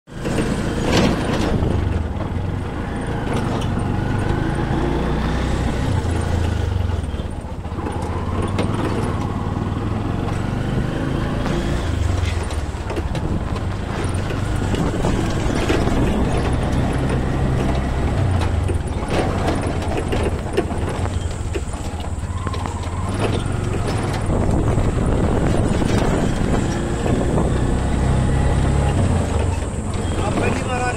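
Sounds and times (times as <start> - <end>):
vehicle body rattling: 0.1 - 4.8, 5.5 - 30.9
auto rickshaw engine droning: 0.1 - 30.9
tyre and wind noise: 0.1 - 30.9.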